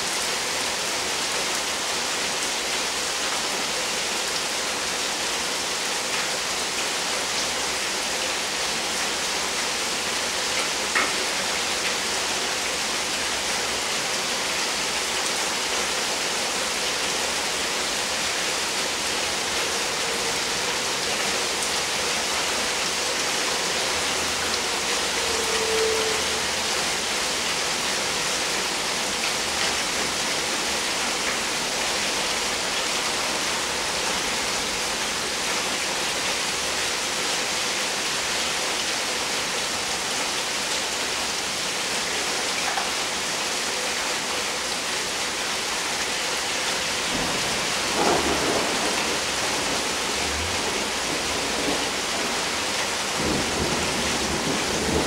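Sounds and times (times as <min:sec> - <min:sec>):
rain falling and splashing: 0:00.0 - 0:55.0
low thunder rumbling: 0:47.1 - 0:52.3.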